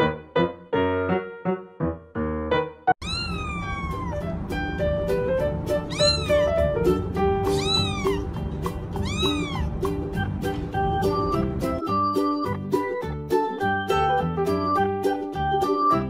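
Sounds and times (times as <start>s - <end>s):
kitten meowing: 3.0s - 4.3s, 5.8s - 6.7s, 7.4s - 8.3s, 8.9s - 9.7s
background music: 3.8s - 16.0s.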